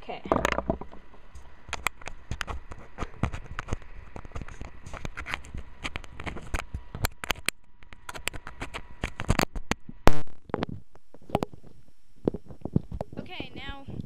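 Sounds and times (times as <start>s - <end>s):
earbuds handling noise: 1.4s - 11.6s.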